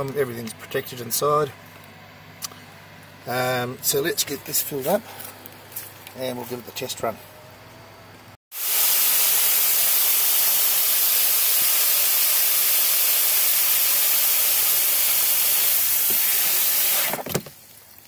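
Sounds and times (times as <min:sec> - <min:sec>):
hose spray splashing into water: 0:08.5 - 0:17.7.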